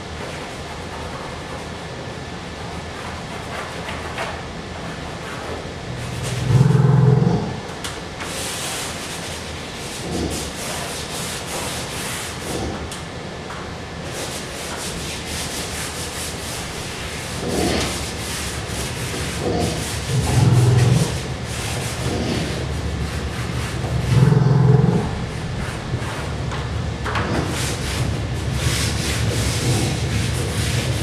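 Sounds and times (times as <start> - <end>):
low rumbles: 5.9 - 7.7
drawing medium scratching on paper: 17.2 - 24.5.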